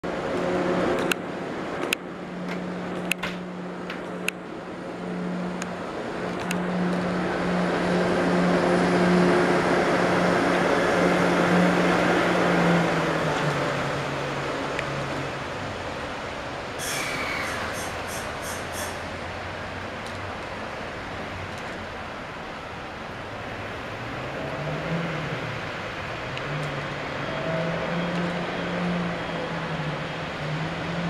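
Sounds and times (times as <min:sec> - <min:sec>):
rushing noise: 0:00.0 - 0:31.0.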